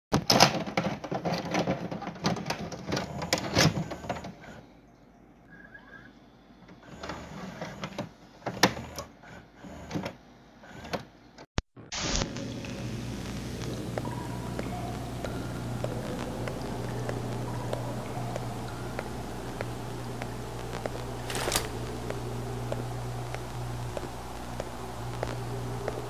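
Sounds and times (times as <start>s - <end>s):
loud burst of noise: 11.8s - 26.0s
clicking and crackling: 11.9s - 26.0s.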